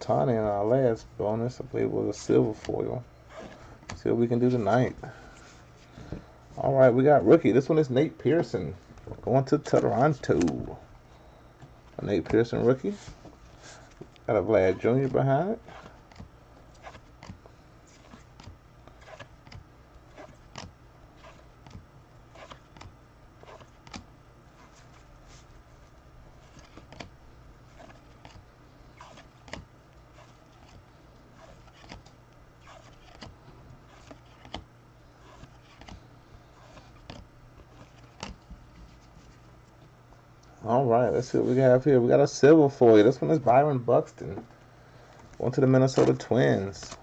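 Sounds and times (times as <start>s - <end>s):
steady low hum: 0.0s - 47.0s
cards being flipped through: 9.6s - 10.7s, 14.9s - 24.0s, 26.4s - 27.1s, 29.0s - 30.8s, 31.4s - 36.0s, 36.6s - 39.4s.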